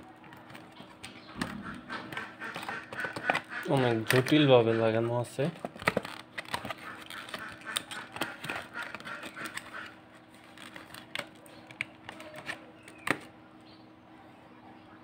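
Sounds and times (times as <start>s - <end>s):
plastic packaging crinkling: 0.0s - 13.3s
plastic snapping: 0.2s - 4.5s, 5.5s - 9.9s, 10.5s - 13.3s.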